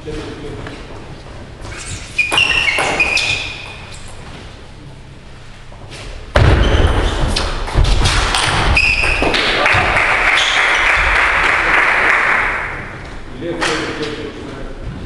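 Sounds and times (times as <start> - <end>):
sports shoes squeaking on wood floor: 1.0 - 7.8, 8.5 - 9.4
table tennis rally thuds: 6.3 - 11.2.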